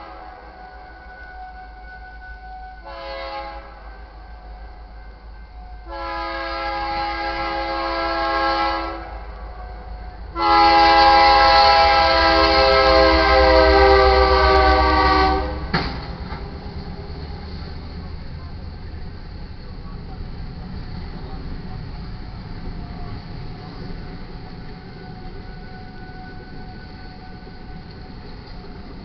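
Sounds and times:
locomotive air horn: 0.0 - 15.7, 24.7 - 28.7
train rumbling past: 0.0 - 29.0.

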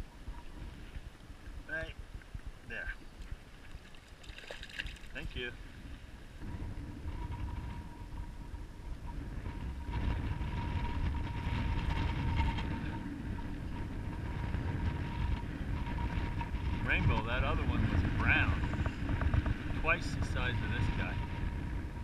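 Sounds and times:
wind buffeting microphone: 0.0 - 22.0
faint steady whine: 5.1 - 22.0.

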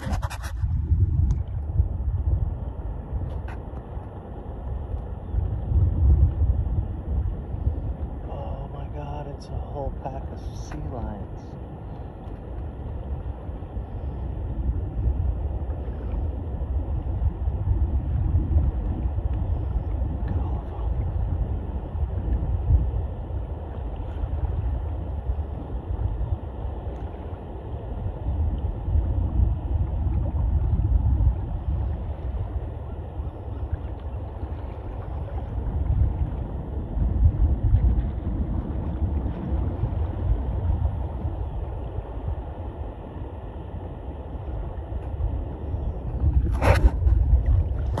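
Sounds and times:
wind buffeting microphone: 0.0 - 48.0.

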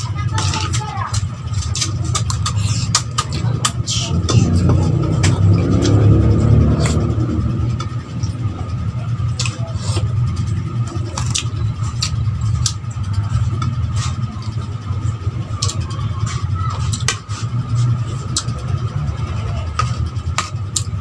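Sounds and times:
steady low hum: 0.0 - 21.0
chewing food: 9.4 - 14.9.

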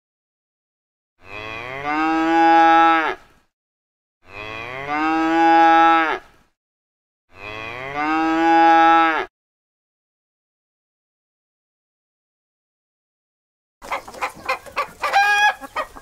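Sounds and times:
cow mooing: 1.2 - 3.3, 4.2 - 6.3, 7.3 - 9.3.

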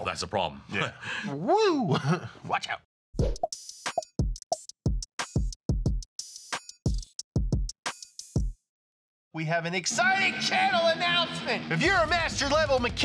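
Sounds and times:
drum machine beat: 3.2 - 8.6.

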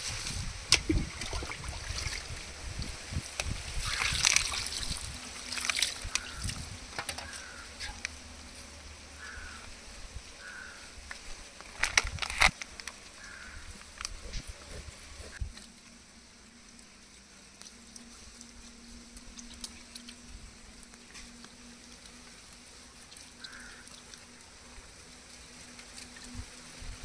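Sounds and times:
water splashing over carcass: 0.7 - 2.9, 3.6 - 6.5.

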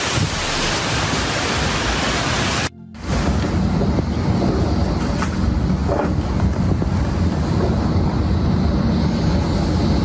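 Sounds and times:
hurricane wind and rain: 0.0 - 10.0
wind buffeting microphone: 3.0 - 10.0.

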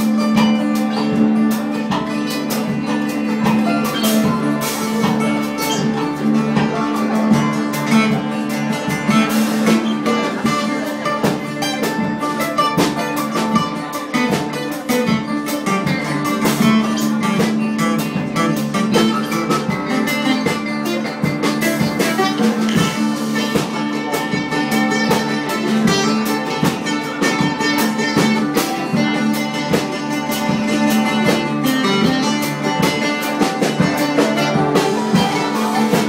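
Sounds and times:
live band playing: 0.0 - 36.0.

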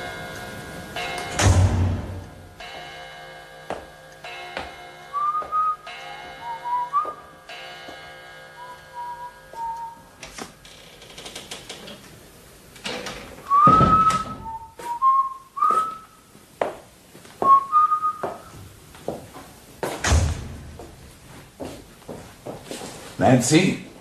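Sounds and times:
heavy thump: 1.4 - 2.4, 13.6 - 14.6, 19.8 - 21.0
person whistling a tune: 5.1 - 7.3, 8.6 - 10.0, 13.5 - 16.2, 17.4 - 18.5.

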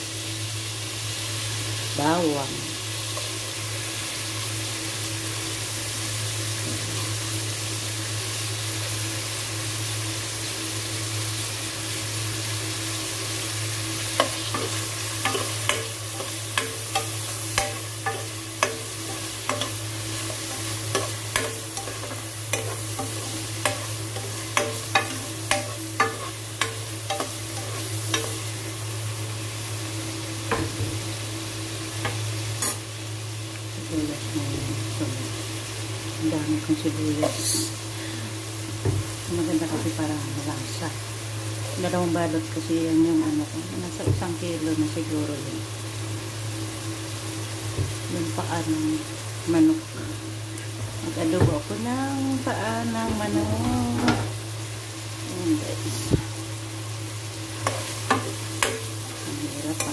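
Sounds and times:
food sizzling in a pan: 0.0 - 59.9
low steady hum: 13.1 - 45.6.

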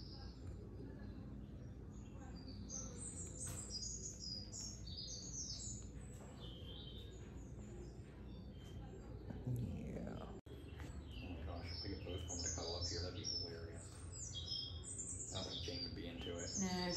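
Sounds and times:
birds chirping: 0.0 - 16.9.

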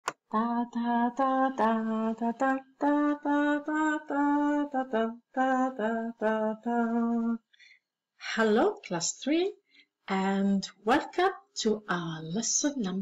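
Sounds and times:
woman singing: 0.3 - 7.4.

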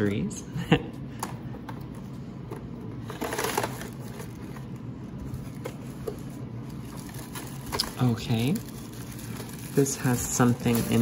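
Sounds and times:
cardboard rustling and crinkling: 2.5 - 11.0.

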